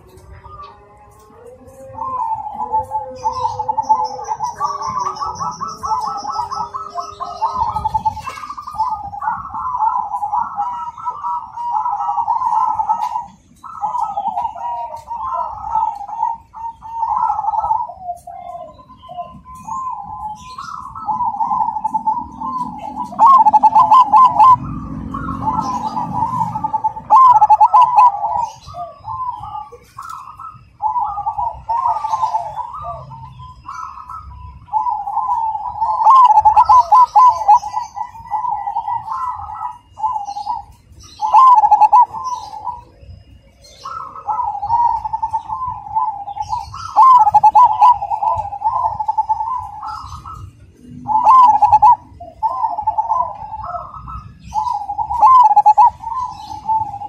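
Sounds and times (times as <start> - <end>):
dove cooing: 0.0 - 57.0.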